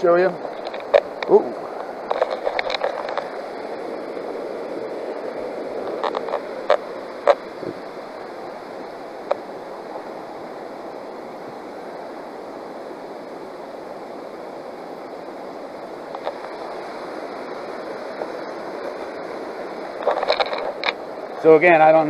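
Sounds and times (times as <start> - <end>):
river water rushing: 0.0 - 22.0.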